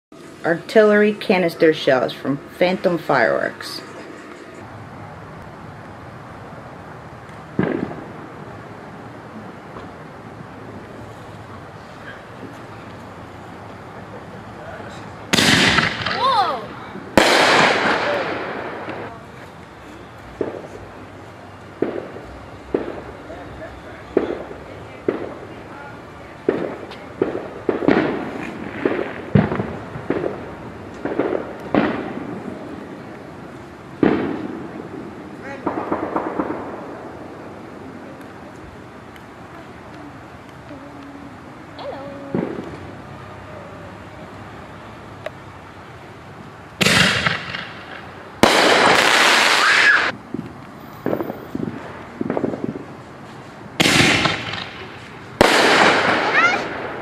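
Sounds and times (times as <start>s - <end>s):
fireworks banging: 6.8s - 43.4s, 46.4s - 57.0s
small firework pops: 7.2s - 8.1s, 15.3s - 16.2s, 17.2s - 19.2s, 24.1s - 25.4s, 26.4s - 32.2s, 42.2s - 42.9s, 46.7s - 52.8s, 53.8s - 57.0s.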